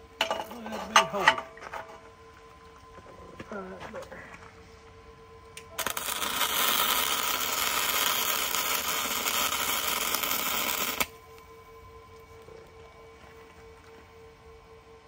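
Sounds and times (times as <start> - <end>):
welder arc crackling: 5.6 - 11.4.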